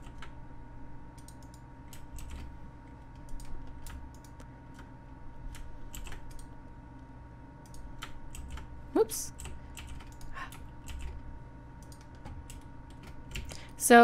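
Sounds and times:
faint electrical hum: 0:00.0 - 0:14.0
keyboard and mouse clicking: 0:01.2 - 0:02.5, 0:03.1 - 0:04.9, 0:05.5 - 0:06.5, 0:09.4 - 0:11.2, 0:11.8 - 0:13.6.

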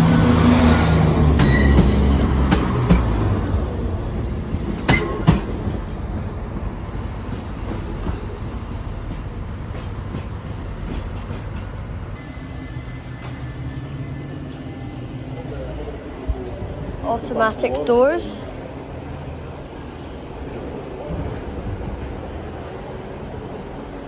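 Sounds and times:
diesel train passing: 0:00.0 - 0:24.0
train wheels clicking over rail joint: 0:01.4 - 0:03.2, 0:04.7 - 0:05.7.

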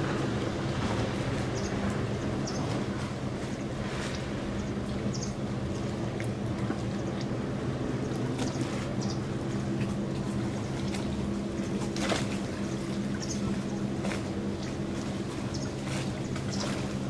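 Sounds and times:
boat engine running: 0:00.0 - 0:17.0
water splashing: 0:00.0 - 0:17.0.

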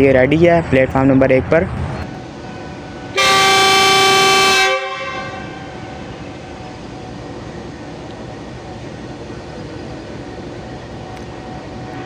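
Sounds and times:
diesel engine running: 0:00.0 - 0:12.0
locomotive horn blast: 0:02.1 - 0:06.8.

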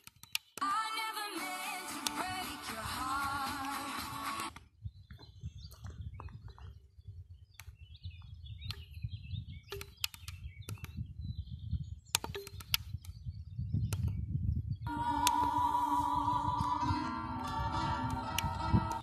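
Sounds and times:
music on radio: 0:00.6 - 0:04.6, 0:14.9 - 0:19.0.

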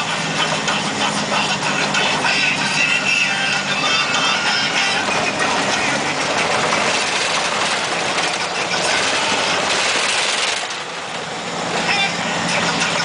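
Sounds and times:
engine hum: 0:00.0 - 0:13.0
gravel road noise: 0:00.0 - 0:13.0.

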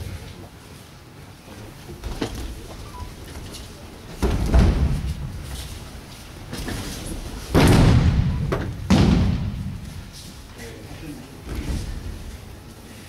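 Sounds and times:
bodies thudding onto mats: 0:02.0 - 0:10.2
breakfall slaps: 0:07.5 - 0:10.1.

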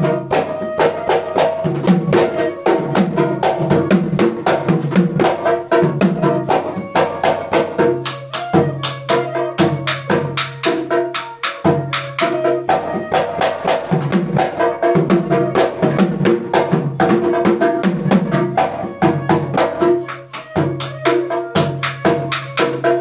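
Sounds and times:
barrel drum beaten quickly: 0:00.0 - 0:23.0
flute melody: 0:00.0 - 0:23.0.

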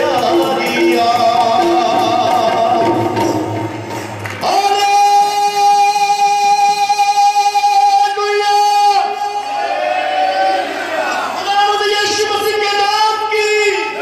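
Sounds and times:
person singing amplified: 0:00.0 - 0:03.6, 0:04.4 - 0:09.4.

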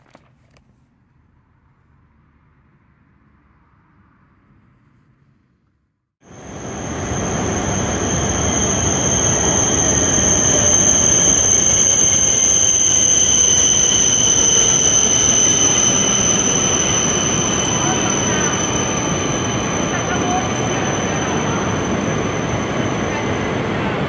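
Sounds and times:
high-pitched whine: 0:06.2 - 0:24.0
train rumble: 0:06.2 - 0:24.0.

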